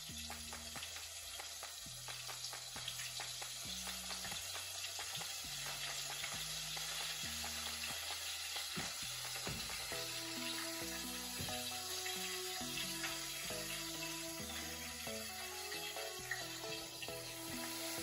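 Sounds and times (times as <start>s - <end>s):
food frying in hot oil: 0.0s - 18.0s.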